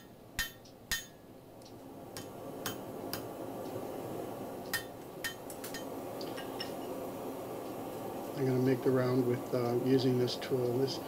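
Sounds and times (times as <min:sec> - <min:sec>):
hammer striking hot steel on anvil: 0:00.0 - 0:01.3, 0:02.2 - 0:03.3, 0:04.7 - 0:06.8.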